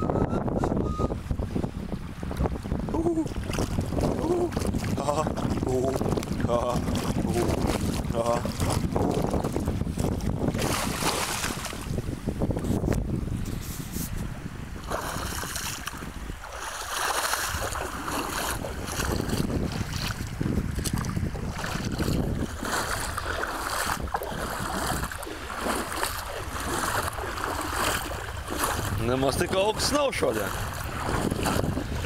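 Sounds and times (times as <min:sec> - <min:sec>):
wind on microphone: 0:00.0 - 0:32.0
feet splashing through shallow water: 0:02.2 - 0:12.6, 0:13.8 - 0:32.0.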